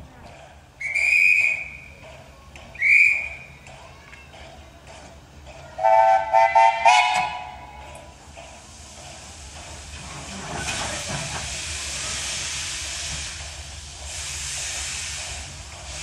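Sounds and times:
guard's whistle blasts: 0.8 - 1.8
steam locomotive whistle: 0.8 - 1.9, 2.8 - 3.5, 5.8 - 7.8.

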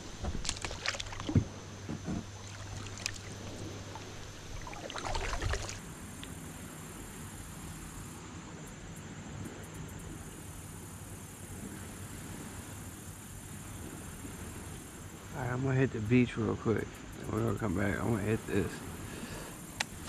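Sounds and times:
water sloshing: 0.0 - 5.9
faint steady hiss: 0.0 - 20.0.

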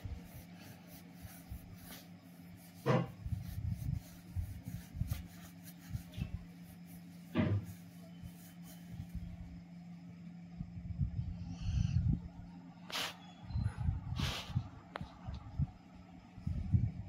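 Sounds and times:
yarn and crochet hook rubbing: 0.0 - 9.3
low hum: 0.0 - 17.0.

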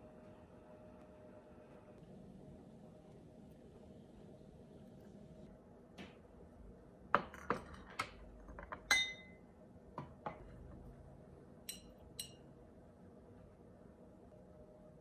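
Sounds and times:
glass knocks and clinks: 8.7 - 9.4
metal tongs clinking on glass: 8.9 - 9.4, 11.7 - 12.4.

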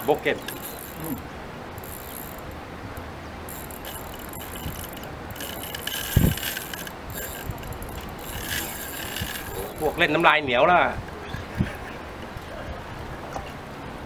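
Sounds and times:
fishing reel clicking and whirring: 0.0 - 2.6, 3.5 - 10.2.

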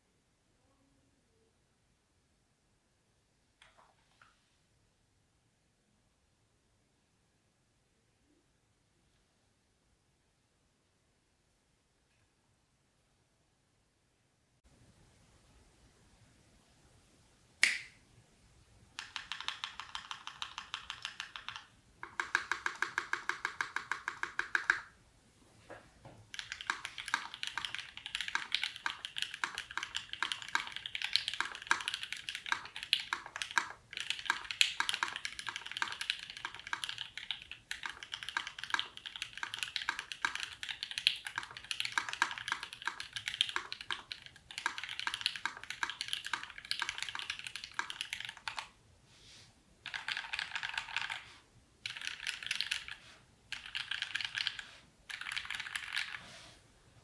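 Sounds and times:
mechanical keyboard typing: 19.0 - 25.0, 26.3 - 48.8, 49.8 - 56.3.

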